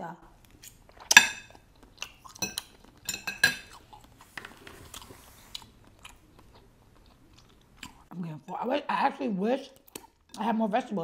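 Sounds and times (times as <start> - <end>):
chewing: 0.4 - 8.1, 9.7 - 10.4
fork clinking on a plate: 2.4 - 3.8.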